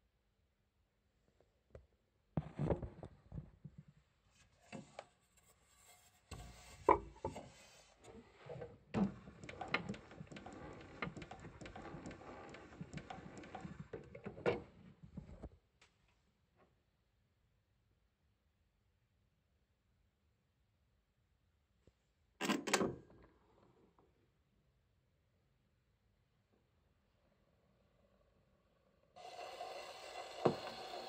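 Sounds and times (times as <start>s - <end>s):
rubbing of wood and metal: 4.7s - 14.8s
clicks and knocks on gramophone: 9.0s - 14.7s.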